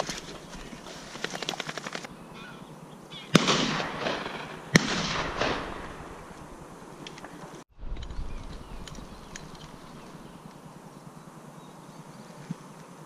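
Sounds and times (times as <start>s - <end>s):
shotgun shots with echo: 3.3s - 6.3s.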